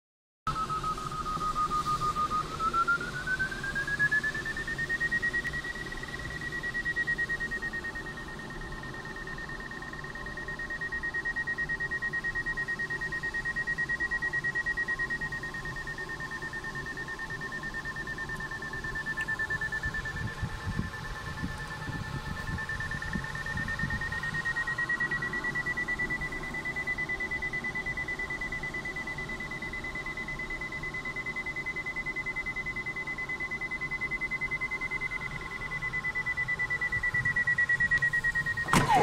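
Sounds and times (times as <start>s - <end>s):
variometer beeping rapidly: 0.5s - 39.0s.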